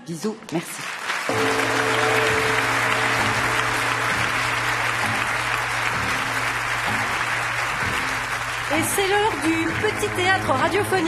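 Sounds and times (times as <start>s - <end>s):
studio audience applauding: 0.7s - 11.0s
music jingle with held notes: 1.3s - 6.2s.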